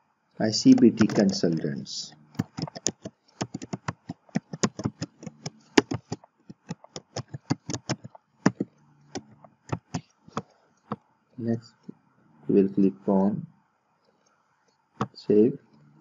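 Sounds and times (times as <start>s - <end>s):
keyboard typing: 0.7s - 11.0s.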